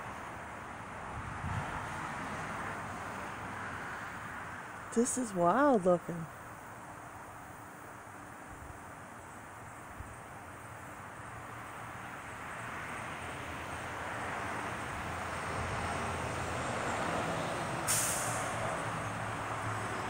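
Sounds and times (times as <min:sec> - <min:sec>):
passing vehicle rushing: 0:00.0 - 0:05.7, 0:10.7 - 0:20.0
short sharp hiss: 0:17.9 - 0:18.5.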